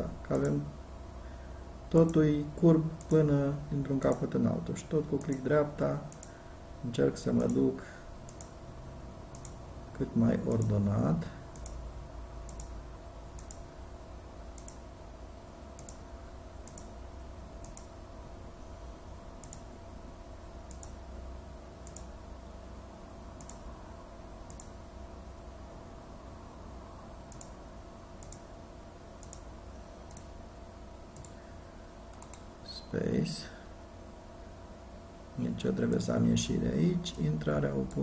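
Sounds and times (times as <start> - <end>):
low electrical hum: 0.0 - 38.0
computer mouse clicking: 2.9 - 3.2, 5.2 - 5.5, 6.1 - 6.4, 8.3 - 8.6, 9.3 - 9.6, 10.5 - 10.8, 11.5 - 11.8, 12.4 - 13.6, 14.5 - 14.8, 15.8 - 16.0, 16.6 - 16.9, 17.6 - 17.9, 19.4 - 19.7, 20.7 - 21.0, 21.8 - 22.1, 23.4 - 23.6, 24.4 - 24.8, 27.3 - 27.6, 28.2 - 28.5, 29.2 - 30.3, 31.1 - 31.4, 32.1 - 32.5.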